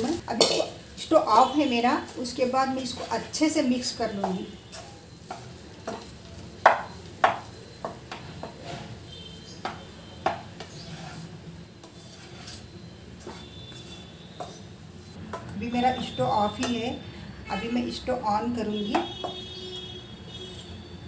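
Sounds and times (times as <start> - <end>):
spatula scraping rice in pan: 4.6 - 6.2, 7.8 - 15.2
spatula knocking against pan: 5.3 - 8.6, 9.6 - 10.8, 18.9 - 19.4.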